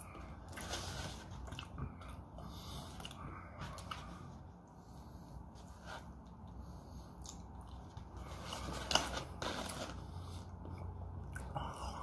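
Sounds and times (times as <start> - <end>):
chewing: 0.1 - 2.2.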